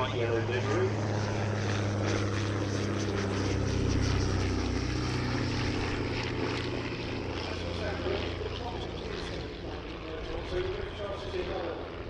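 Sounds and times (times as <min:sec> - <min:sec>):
biplane engines droning: 0:00.0 - 0:12.0.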